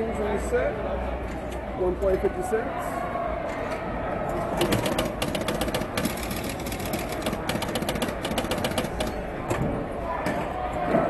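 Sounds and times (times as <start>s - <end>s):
pinball machine relays clicking: 4.6s - 9.3s.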